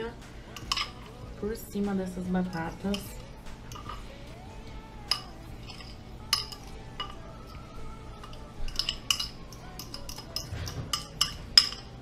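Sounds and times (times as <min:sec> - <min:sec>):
spoon scraping glass bowl: 0:00.5 - 0:01.2, 0:02.4 - 0:04.2, 0:05.1 - 0:12.0.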